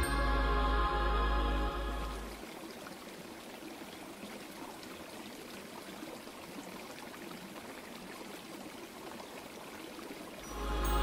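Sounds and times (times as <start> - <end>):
stream trickling over rocks: 1.4 - 11.0.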